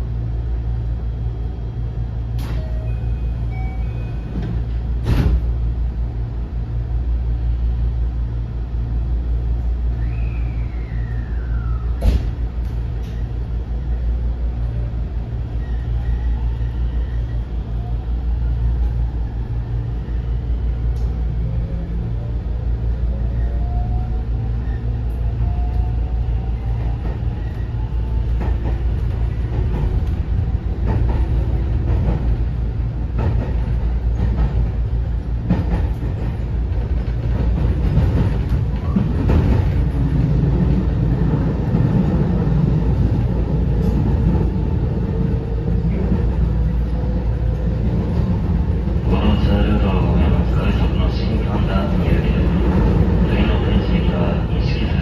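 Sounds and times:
train cabin low rumble: 0.0 - 55.0.

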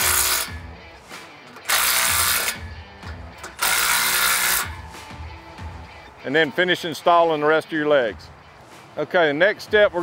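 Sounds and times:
impact driver hammering bolts: 1.5 - 4.8.

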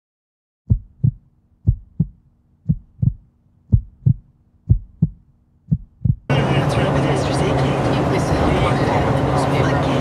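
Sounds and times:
heartbeat thumps: 0.7 - 6.3
faint steady hum: 0.7 - 8.0.

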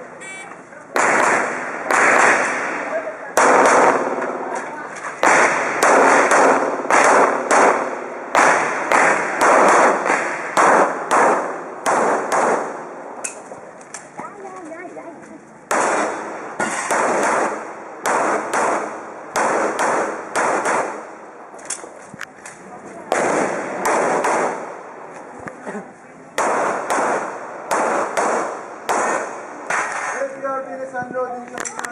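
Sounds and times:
pistol shots with echo: 0.9 - 13.4, 15.7 - 21.3, 23.1 - 25.0, 26.4 - 30.3.

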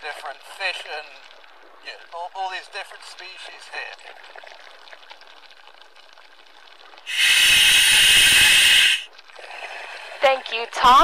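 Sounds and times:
diver breathing through regulator: 7.1 - 9.1.

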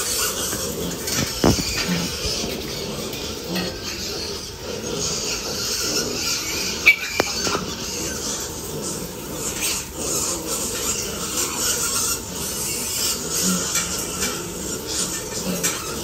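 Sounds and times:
piglets grunting: 0.0 - 16.0
trotters shuffling on wet concrete: 0.0 - 16.0.

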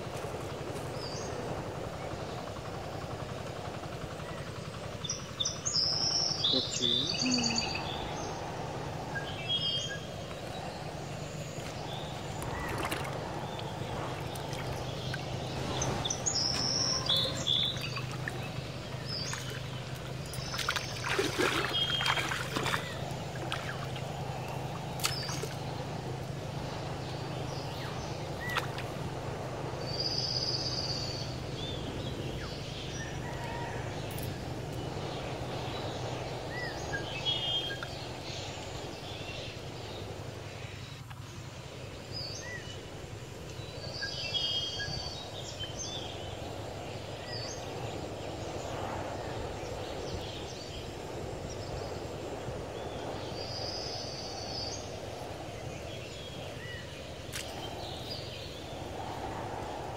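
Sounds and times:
birds chirping: 0.0 - 59.9
steady low hum: 0.0 - 59.9
water sloshing as people wade: 10.1 - 30.0.

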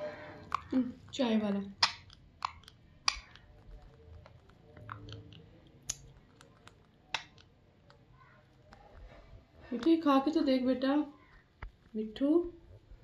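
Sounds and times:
parakeet crunching bread: 0.2 - 9.9.

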